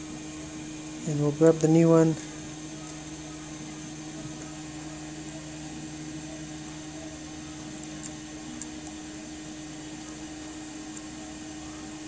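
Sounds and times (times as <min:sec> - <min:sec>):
motor hum with hiss: 0:00.0 - 0:12.0.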